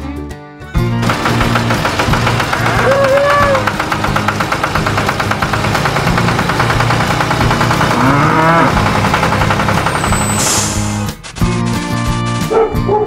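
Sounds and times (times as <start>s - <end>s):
tractor engine chugging: 1.0s - 11.3s.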